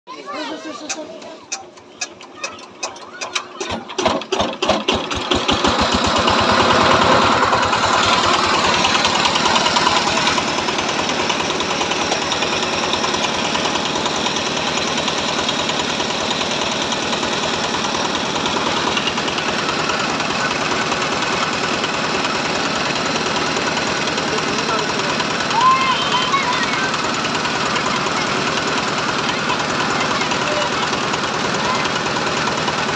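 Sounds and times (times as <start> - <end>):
diesel engine starting and running: 0.1 - 32.9.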